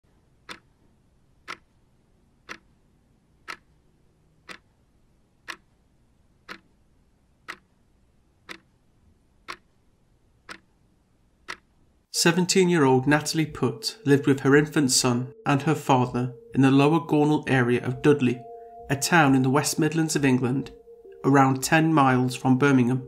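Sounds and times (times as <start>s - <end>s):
clock ticking: 0.4s - 1.8s, 2.4s - 2.8s, 3.4s - 4.8s, 5.4s - 5.8s, 6.4s - 6.8s, 7.4s - 7.8s, 8.4s - 8.8s, 9.4s - 9.8s, 10.4s - 10.8s, 11.4s - 23.0s.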